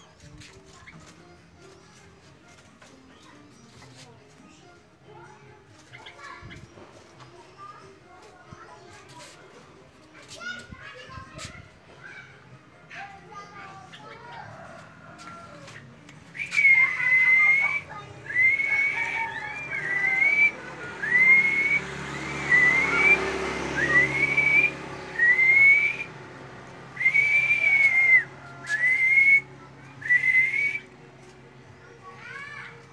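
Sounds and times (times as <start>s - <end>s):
loud clear whistles: 16.4s - 26.1s, 27.0s - 30.9s.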